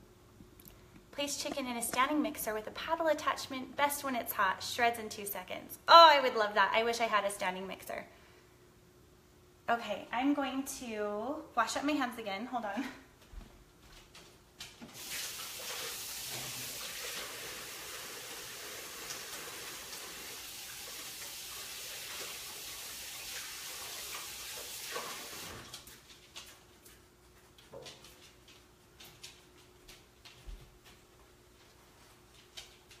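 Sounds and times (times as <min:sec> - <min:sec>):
tap water running over hands: 0:14.9 - 0:25.7.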